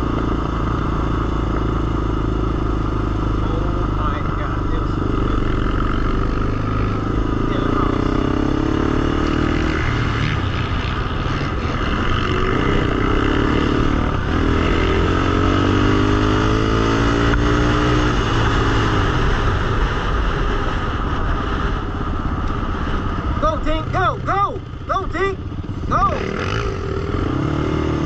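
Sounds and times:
quad engine revving: 0.0 - 19.1, 25.7 - 28.0
low engine drone: 0.0 - 28.0.

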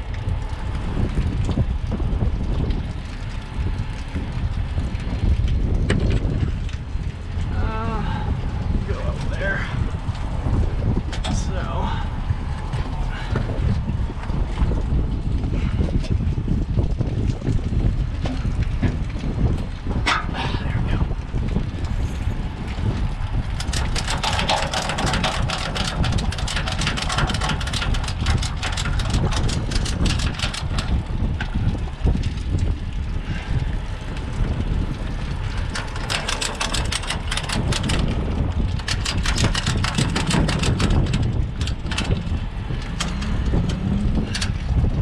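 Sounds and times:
steady low rumble: 0.0 - 45.0
hand ratchet clicking: 23.6 - 31.0, 35.6 - 38.2, 38.8 - 44.6.

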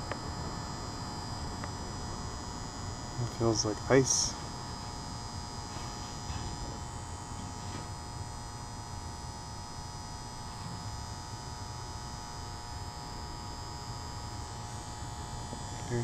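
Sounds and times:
high-pitched whine: 0.0 - 16.0
steady hum: 0.0 - 16.0.

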